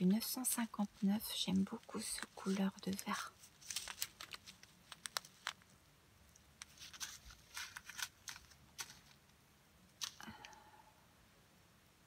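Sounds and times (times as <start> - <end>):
plastic bags crinkling: 0.8 - 9.2.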